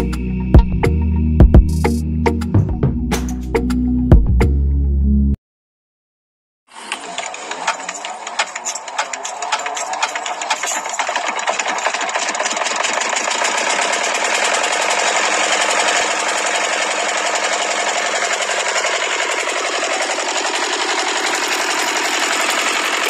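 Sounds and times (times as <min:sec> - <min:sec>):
small engine mechanical rattle: 0:06.7 - 0:23.0.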